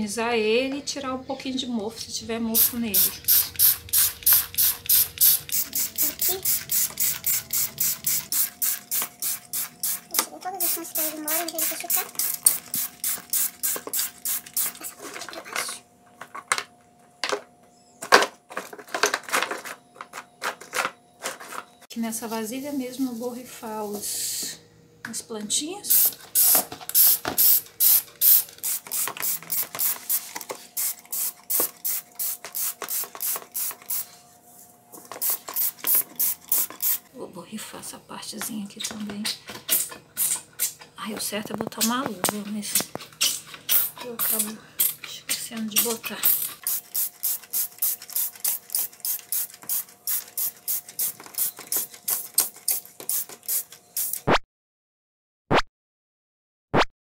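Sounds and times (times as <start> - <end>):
spray bottle squirts: 2.6 - 10.0, 10.6 - 15.1, 25.9 - 34.1, 35.0 - 37.1, 39.7 - 40.8, 42.8 - 44.9, 46.2 - 54.4.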